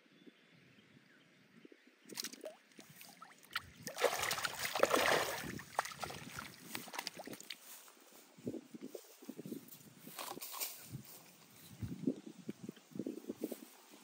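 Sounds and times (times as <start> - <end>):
fish thrashing and splashing: 2.1 - 7.6.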